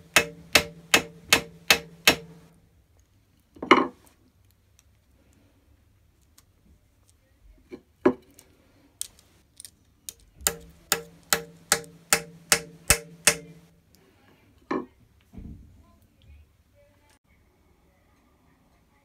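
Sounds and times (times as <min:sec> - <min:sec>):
small hammer tapping metal: 0:00.0 - 0:02.5, 0:10.1 - 0:13.7.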